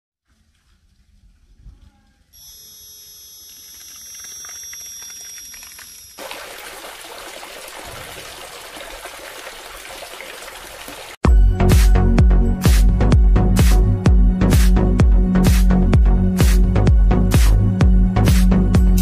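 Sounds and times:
electric motor high whine: 0:02.4 - 0:06.2
water pouring from hose: 0:04.0 - 0:11.2.

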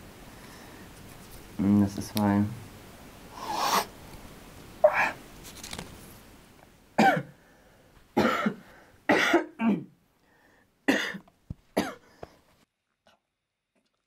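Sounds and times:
man coughing hard: 0:07.0 - 0:07.3, 0:08.2 - 0:10.0, 0:10.9 - 0:11.2, 0:11.8 - 0:12.0.

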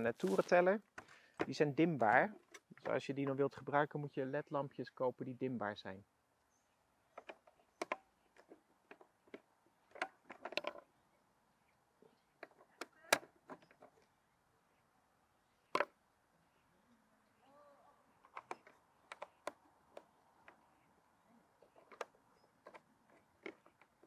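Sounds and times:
small plastic and metal clicks: 0:07.1 - 0:10.8, 0:18.2 - 0:20.6, 0:21.7 - 0:24.0.

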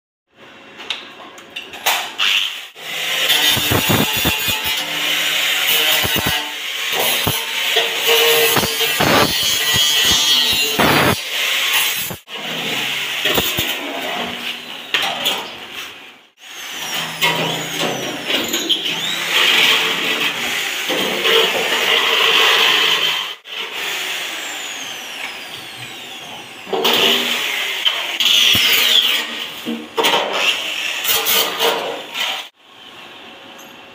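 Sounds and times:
electric drill boring metal: 0:02.2 - 0:13.9, 0:16.4 - 0:29.4
angle grinder grinding metal: 0:02.2 - 0:15.0, 0:16.4 - 0:32.5.

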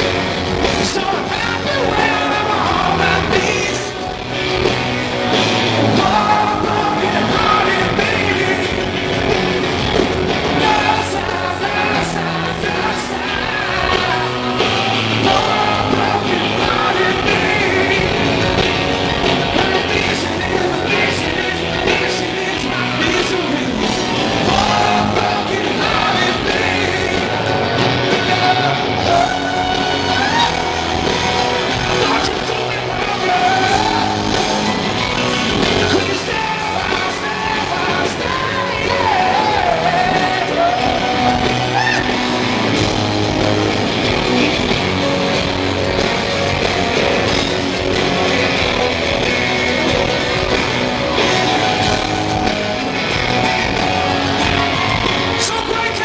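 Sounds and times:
man singing: 0:00.0 - 0:04.4, 0:05.2 - 0:42.4, 0:55.4 - 0:56.0
live rock band playing: 0:00.0 - 0:56.0.

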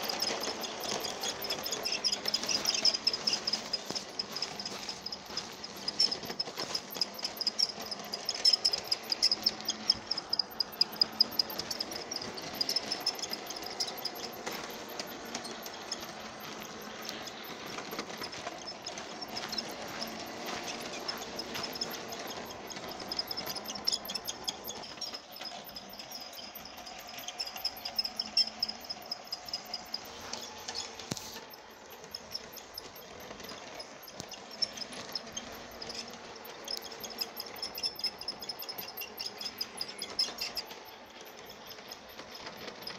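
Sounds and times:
toy train motor whine: 0:00.0 - 0:42.9
wheels clattering over rail joints: 0:00.0 - 0:42.9.

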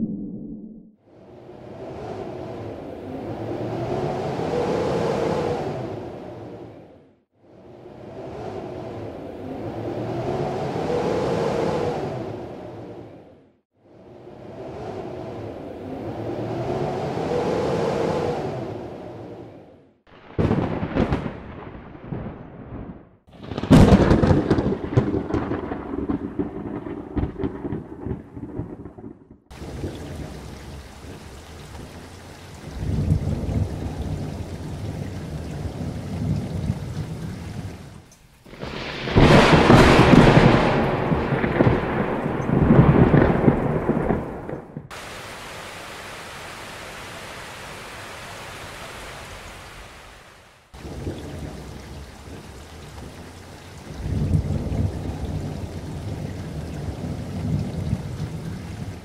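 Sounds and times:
rumbling water surges: 0:01.1 - 0:19.6, 0:29.5 - 0:59.0
heavy rain pouring on street: 0:23.3 - 0:28.8, 0:29.5 - 0:59.0.

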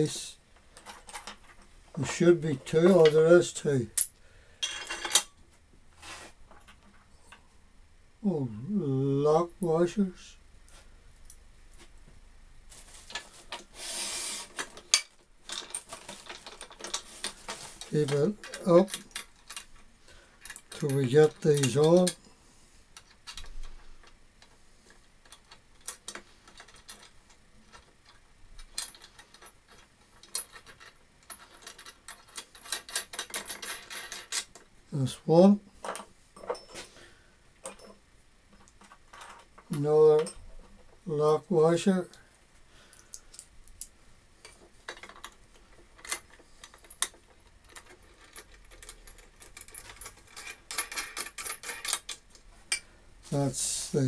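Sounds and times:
metallic clicks of bolts and nuts: 0:25.2 - 0:34.7, 0:42.9 - 0:52.9.

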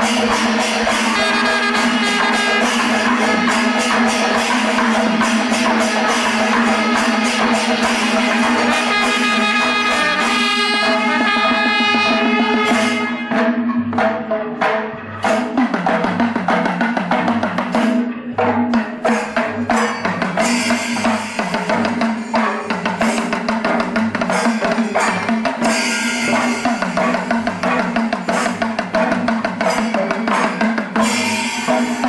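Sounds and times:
fast dense drumming: 0:00.0 - 0:12.7, 0:14.6 - 0:32.0.

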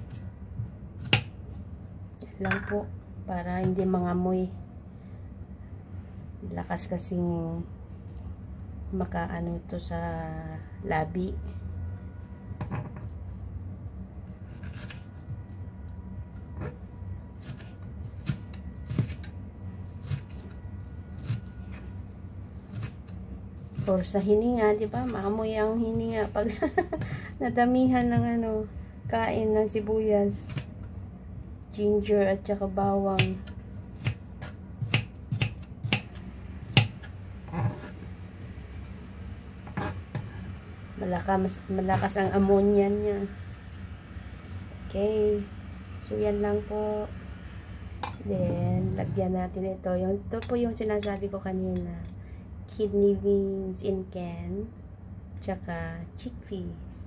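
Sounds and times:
knife slicing onion: 0:14.3 - 0:15.3, 0:17.4 - 0:28.4, 0:32.9 - 0:38.0, 0:39.6 - 0:40.6
knife chopping on wooden board: 0:34.0 - 0:36.1, 0:39.6 - 0:40.4.

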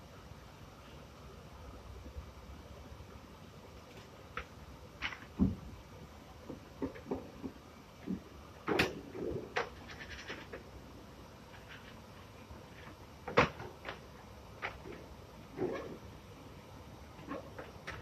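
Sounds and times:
rubber strips and jigs clattering: 0:06.8 - 0:10.8.

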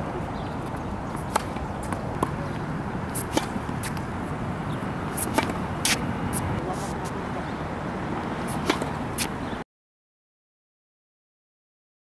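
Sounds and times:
steady outdoor rumble: 0:00.0 - 0:09.6
tennis ball pops: 0:01.2 - 0:02.4, 0:03.2 - 0:04.1, 0:05.2 - 0:06.0, 0:08.5 - 0:09.3.

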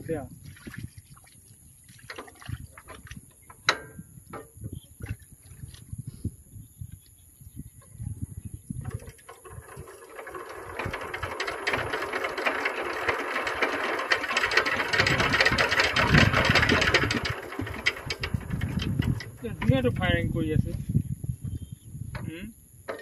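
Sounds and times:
diesel engine clattering: 0:09.2 - 0:20.4.

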